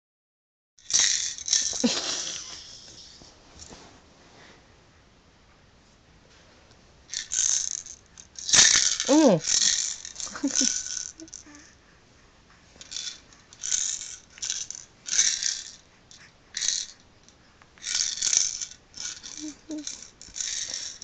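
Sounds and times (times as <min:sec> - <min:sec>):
plastic maraca rattling: 0:00.8 - 0:02.5, 0:07.1 - 0:11.6, 0:12.8 - 0:17.0, 0:17.8 - 0:21.0.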